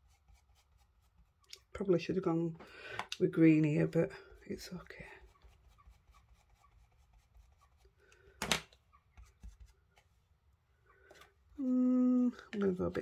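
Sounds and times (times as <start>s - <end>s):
brush scrubbing on card: 0.0s - 1.4s, 3.8s - 8.0s, 9.1s - 10.2s, 11.6s - 13.0s.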